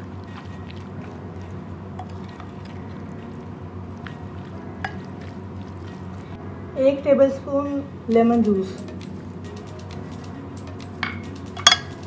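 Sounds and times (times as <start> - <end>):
wet squelching of stirred meat: 0.0 - 6.4
steady low hum: 0.0 - 12.0.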